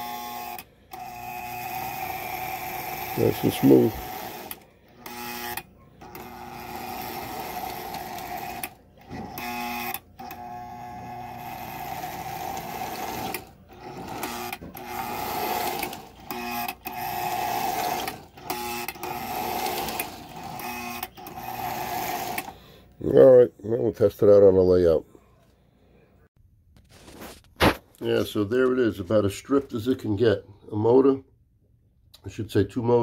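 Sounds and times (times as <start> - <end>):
electric toy train motor whirring: 0.0 - 22.6.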